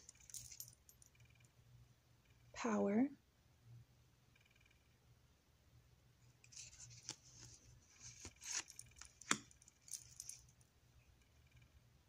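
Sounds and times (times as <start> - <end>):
cards sliding and rustling: 6.5 - 9.5.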